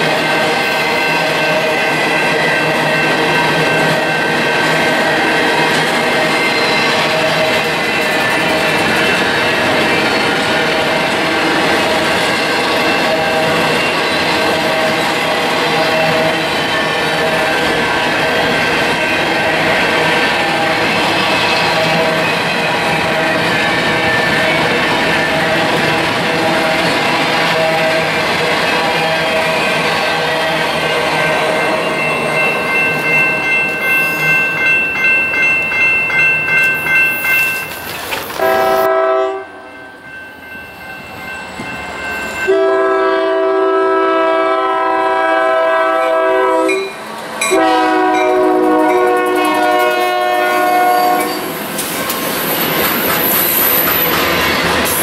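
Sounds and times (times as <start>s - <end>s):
freight train wheels clicking: 0.0s - 38.9s, 46.8s - 55.0s
train air horn blasts: 25.3s - 28.2s, 28.8s - 31.5s, 38.4s - 39.7s, 42.5s - 51.6s.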